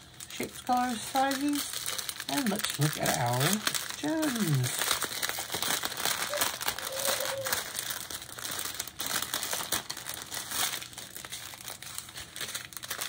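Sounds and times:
plastic bags crinkling: 0.0s - 13.0s.

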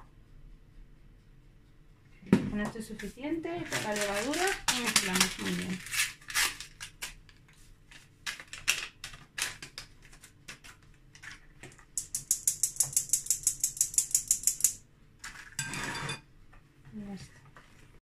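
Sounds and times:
metal sieve tapping: 11.9s - 14.8s
sieve scraping on plate: 15.3s - 16.2s.

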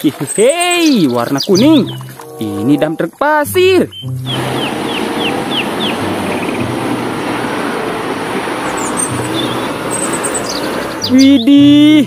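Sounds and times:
high falling chirps: 0.0s - 11.6s
diesel truck engine running: 3.6s - 11.4s.

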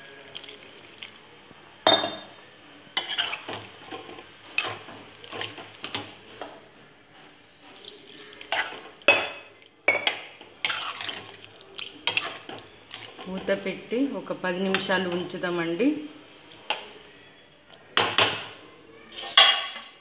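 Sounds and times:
spoon clinking against metal pan: 1.9s - 2.3s, 9.1s - 10.2s.

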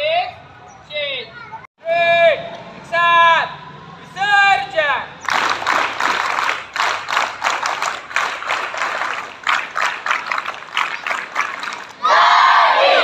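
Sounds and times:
children clapping: 5.2s - 12.0s
children shouting: 12.0s - 13.0s.

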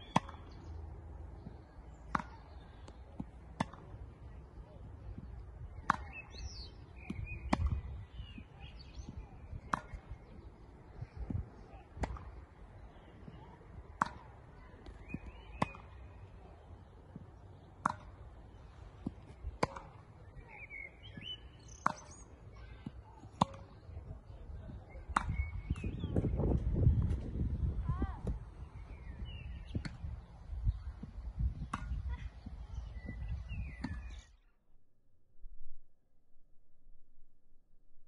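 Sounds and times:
tennis ball bouncing: 0.0s - 4.2s, 5.1s - 10.4s, 11.2s - 12.5s, 13.2s - 20.2s, 21.0s - 24.0s, 25.0s - 27.3s, 31.0s - 32.0s
birds chirping: 0.0s - 34.5s
tennis racket hitting ball: 9.7s - 10.2s, 17.8s - 18.2s, 18.9s - 20.0s, 23.2s - 23.8s.

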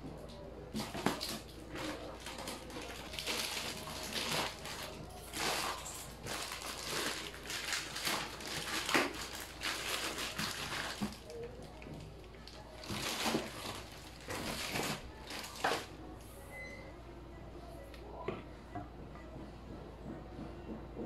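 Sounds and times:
plastic and cardboard rustling: 0.7s - 16.0s.

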